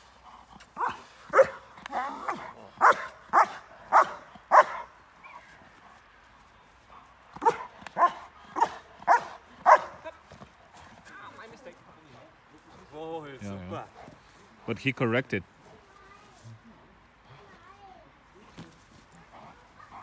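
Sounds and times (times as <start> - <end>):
dog barking hard: 0.8 - 1.6, 2.3 - 4.9, 7.4 - 10.0.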